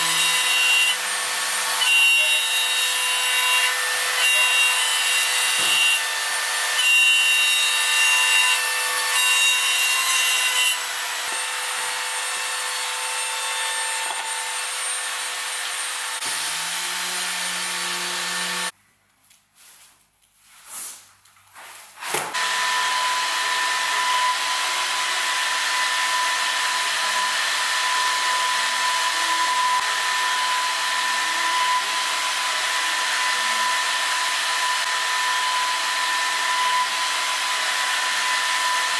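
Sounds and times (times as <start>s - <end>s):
router spindle cutting wood: 0.0s - 18.7s, 22.3s - 38.9s.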